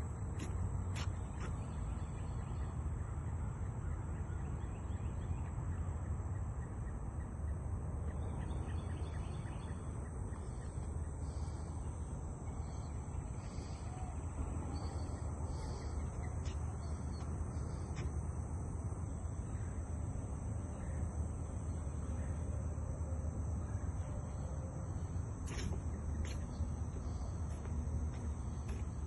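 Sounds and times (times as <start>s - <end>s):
faint bird chirps: 3.8s - 18.1s.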